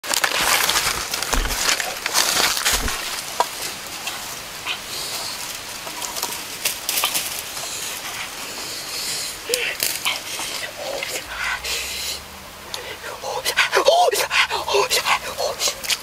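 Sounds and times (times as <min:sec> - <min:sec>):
footsteps through dry leaves: 0:00.0 - 0:04.4.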